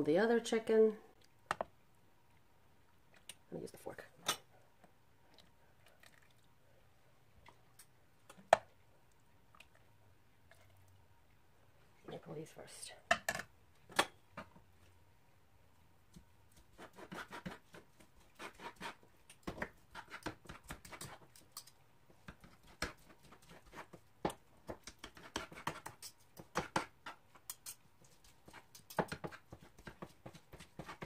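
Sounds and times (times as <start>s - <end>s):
fork scraping on cutting board: 18.4s - 19.0s.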